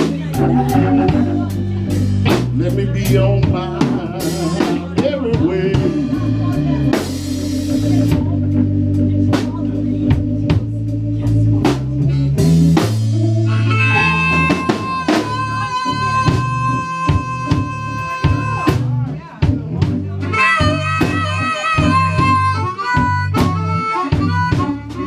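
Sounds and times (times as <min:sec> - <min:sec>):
bass notes: 0:00.0 - 0:25.0
blues band playing: 0:00.0 - 0:25.0
long held high note: 0:13.5 - 0:18.8.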